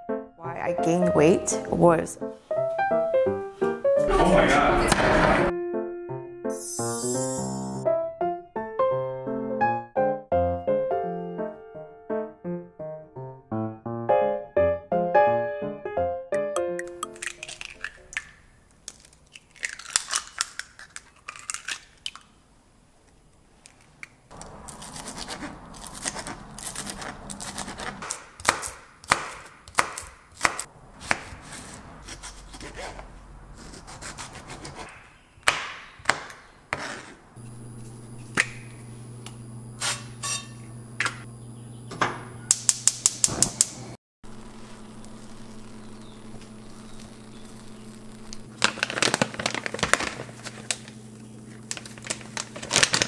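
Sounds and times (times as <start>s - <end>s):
eggs cracked into glass bowl: 16.6s - 22.3s
knife slicing on cutting board: 24.8s - 35.1s.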